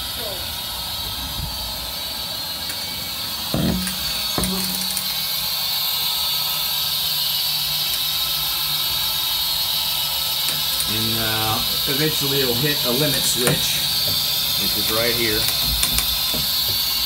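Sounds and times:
steady hiss: 0.1s - 17.0s
motor humming: 0.6s - 17.0s
shutter motor clunk: 3.5s - 5.6s, 10.4s - 17.0s.

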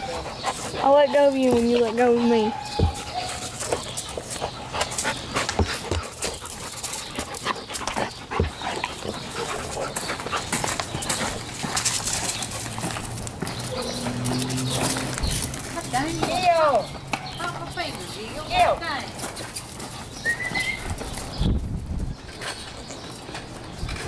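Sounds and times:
dogs play-wrestling: 0.0s - 18.2s
dog panting: 0.0s - 20.7s
paws scuffing on gravel: 0.1s - 24.0s.

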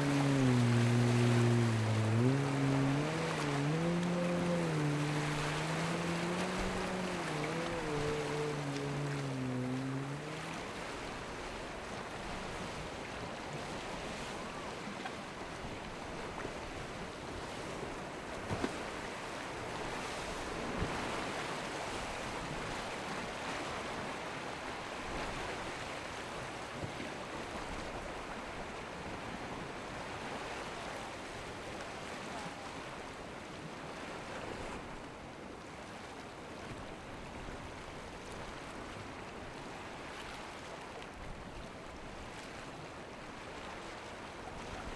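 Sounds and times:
wind on microphone: 0.0s - 11.0s
sea water rushing and splashing: 0.0s - 44.9s.

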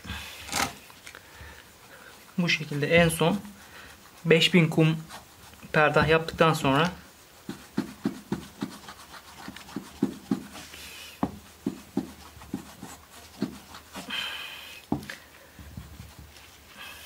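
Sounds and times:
knife stropping on leather: 2.1s - 14.1s.

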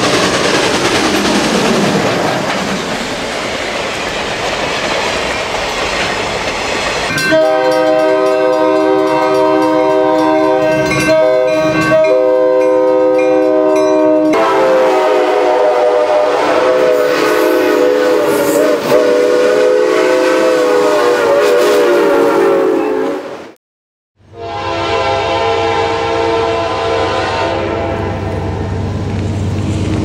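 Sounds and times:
locomotive air horn chord: 7.2s - 23.2s, 24.2s - 28.8s.

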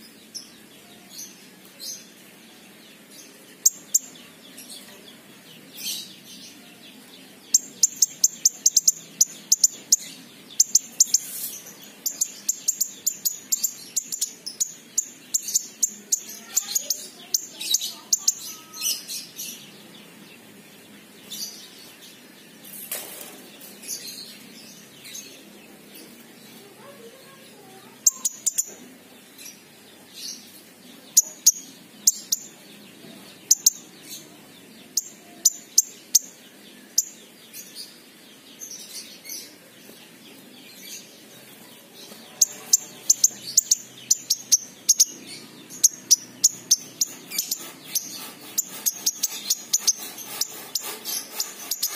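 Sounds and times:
bird chirping rapidly: 3.5s - 4.2s, 7.5s - 20.0s, 26.8s - 28.8s, 33.4s - 34.2s, 42.2s - 51.9s.

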